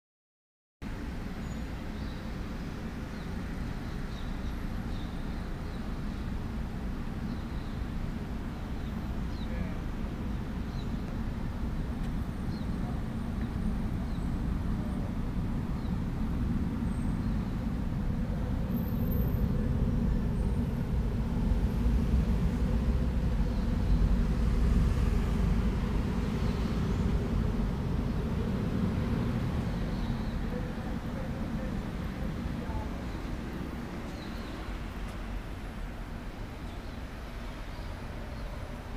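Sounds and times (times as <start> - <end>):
low rumble from ventilation shaft: 7.8 - 38.9.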